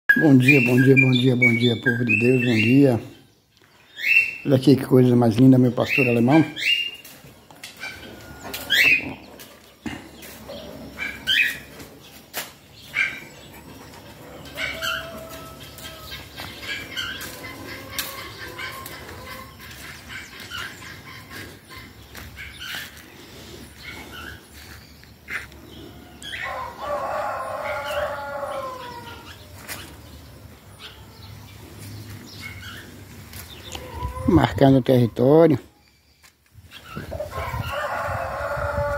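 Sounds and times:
guinea fowl calling: 7.8 - 11.7, 14.4 - 23.0, 33.4 - 34.9
rooster crowing: 14.4 - 16.3, 17.2 - 19.5, 26.1 - 29.3, 37.3 - 38.9.

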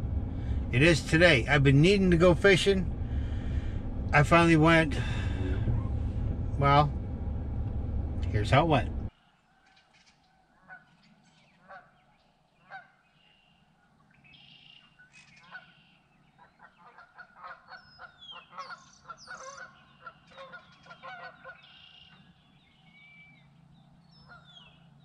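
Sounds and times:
bird chirps: 13.1 - 16.8, 17.7 - 25.0
geese honking: 16.6 - 22.3.

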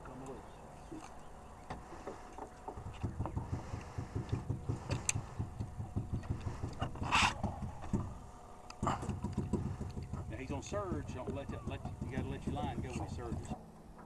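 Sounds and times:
boat engine idling: 0.0 - 13.5.

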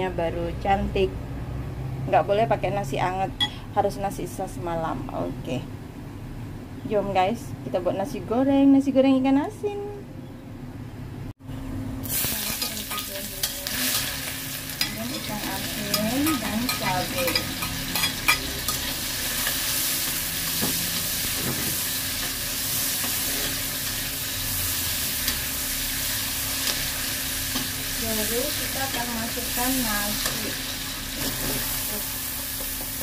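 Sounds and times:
food sizzling in hot oil: 12.0 - 33.0.

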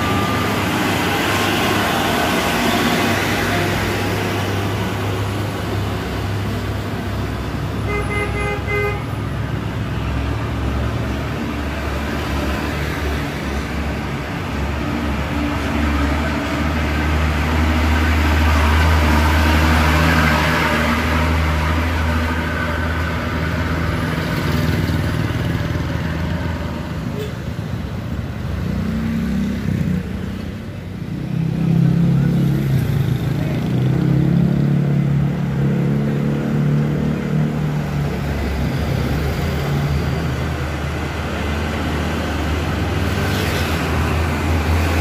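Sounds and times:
dump trucks passing: 0.0 - 45.0
vehicle horn: 7.9 - 9.1.

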